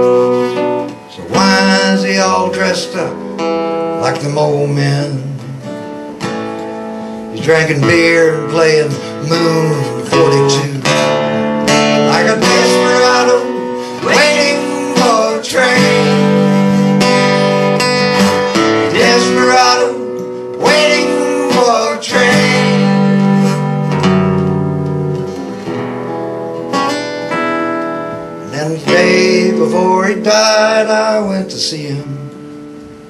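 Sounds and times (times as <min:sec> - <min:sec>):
acoustic guitar strumming: 0:00.0 - 0:33.0
man singing: 0:01.1 - 0:05.8, 0:07.3 - 0:11.2, 0:11.8 - 0:17.4, 0:18.1 - 0:23.6, 0:28.4 - 0:32.4.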